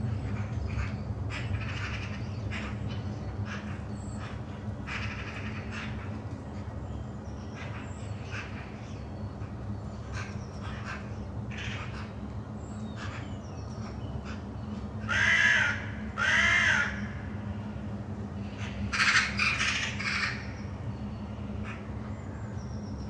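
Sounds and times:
steady low hum: 0.0 - 23.0
crows cawing: 0.3 - 6.2, 10.1 - 12.2, 14.2 - 17.4, 18.5 - 20.5.

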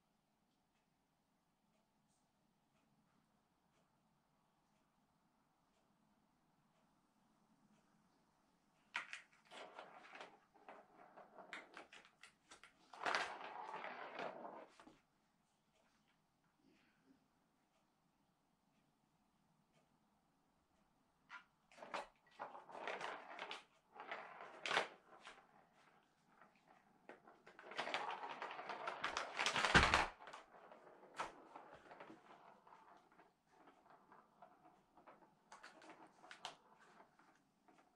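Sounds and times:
ball rolling on plastic track: 8.9 - 15.0, 21.3 - 37.9
plastic toy clicking and rattling: 21.8 - 37.9.

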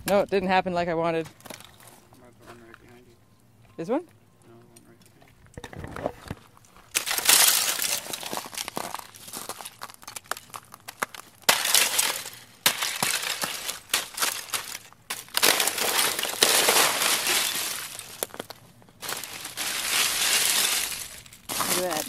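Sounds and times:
ice crunching underfoot: 6.2 - 22.0
small ice clinks: 6.9 - 22.0.

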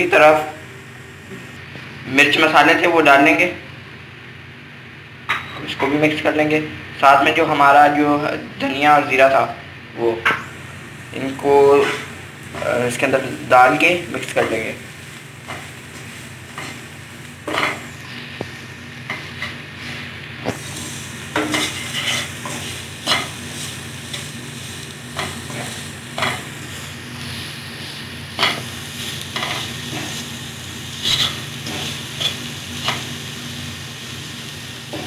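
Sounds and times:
low hum: 0.0 - 2.1
frying sizzle: 10.1 - 35.0
wooden spatula scraping pan: 21.4 - 23.3.

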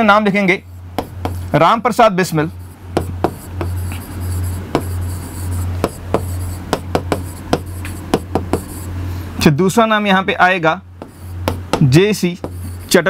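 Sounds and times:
stylus tapping and scratching: 0.5 - 1.8, 2.5 - 9.0, 11.0 - 13.0.

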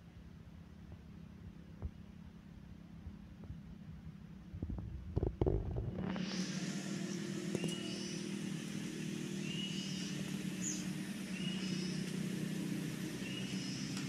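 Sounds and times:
motor humming: 5.3 - 14.0.

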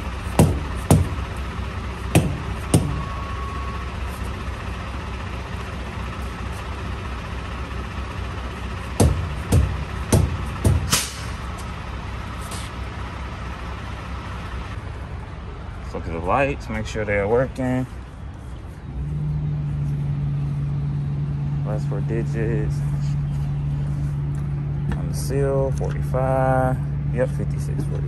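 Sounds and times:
truck engine idling: 0.0 - 28.0
sharp knocks: 0.4 - 1.2, 2.1 - 3.1, 9.0 - 11.3.

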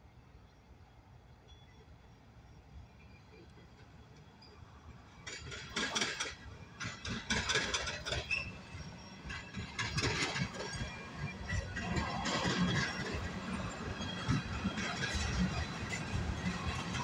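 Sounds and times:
train wheels clanking over rail joints: 5.1 - 17.0.

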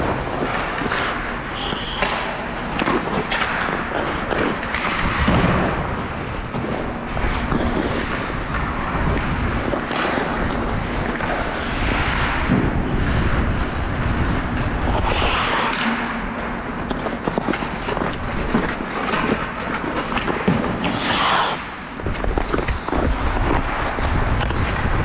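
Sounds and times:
steady rumble: 0.0 - 25.0.

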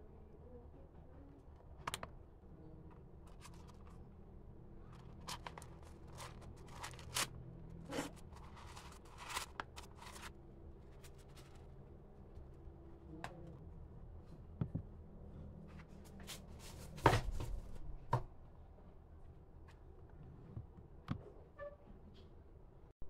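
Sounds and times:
tissue paper rustling and crinkling: 5.0 - 7.3, 7.9 - 10.3.

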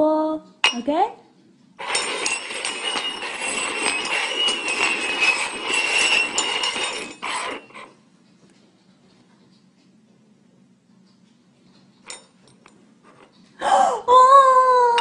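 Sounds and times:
containers scraping and rattling: 1.8 - 8.0.

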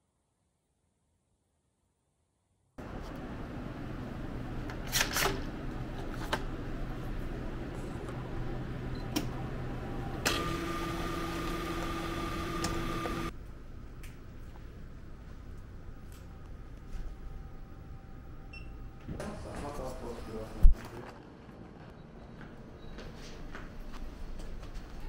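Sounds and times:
coffee machine hum and hiss: 2.8 - 13.4.

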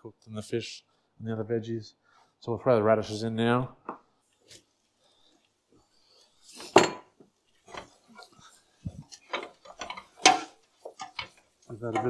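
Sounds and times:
wooden spoon stirring in pot: 4.2 - 12.0
radishes clattering into metal pot: 7.7 - 12.0.

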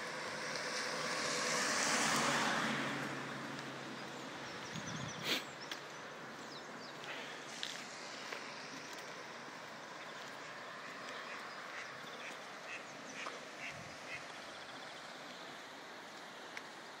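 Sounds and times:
steady rushing hiss: 7.1 - 10.8
duck quacking: 11.3 - 14.2.

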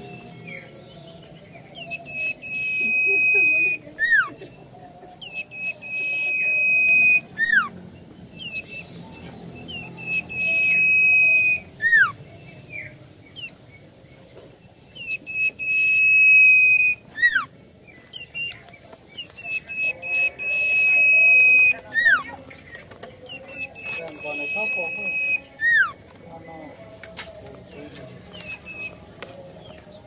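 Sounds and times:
bird chirps: 0.0 - 26.7, 27.8 - 30.0
bird whistling high: 1.8 - 4.2, 5.2 - 7.7, 9.7 - 12.2, 15.0 - 17.5, 19.4 - 22.3, 23.6 - 26.0.

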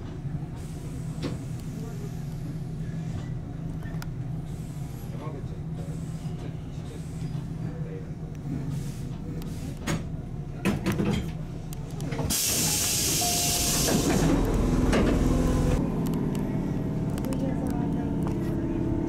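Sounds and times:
electric train humming: 11.6 - 19.0
compressed air hiss: 12.3 - 14.2.

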